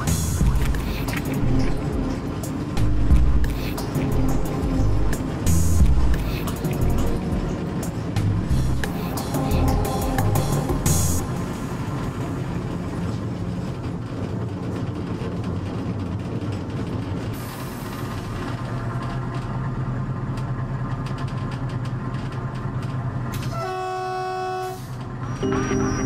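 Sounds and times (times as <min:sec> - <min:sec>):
wheels clicking over rails: 0:00.0 - 0:23.7
diesel locomotive engine drone: 0:00.0 - 0:26.0
locomotive horn blast: 0:23.4 - 0:26.0.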